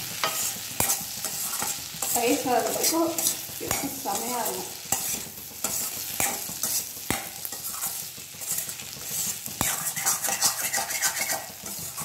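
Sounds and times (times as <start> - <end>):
potatoes sizzling in oil: 0.0 - 12.0
spoon scraping pan: 0.0 - 12.0
spoon clinking on pan: 4.9 - 7.7.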